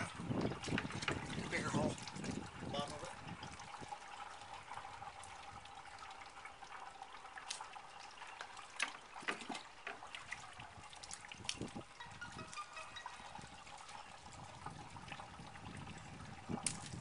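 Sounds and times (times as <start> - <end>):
water trickling into container: 0.0 - 17.0.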